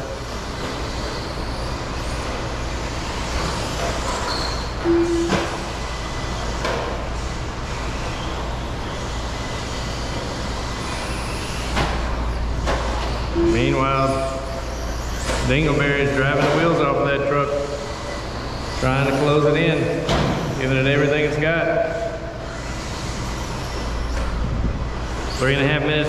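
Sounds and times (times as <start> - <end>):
model truck motors and tyres rushing: 0.0 - 4.8, 5.7 - 13.3, 14.0 - 16.8, 17.5 - 19.8, 22.5 - 25.5
short tone: 4.8 - 5.7, 13.3 - 14.5.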